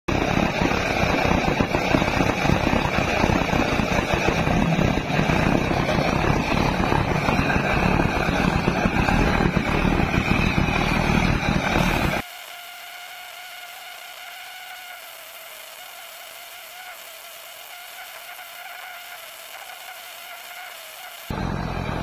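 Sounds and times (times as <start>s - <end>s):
oil burner flame rushing: 0.1s - 12.2s, 18.0s - 22.0s.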